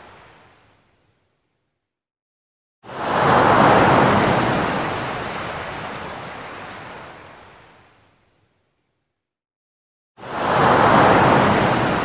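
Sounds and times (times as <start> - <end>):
wave breaking on shore: 10.3 - 12.0.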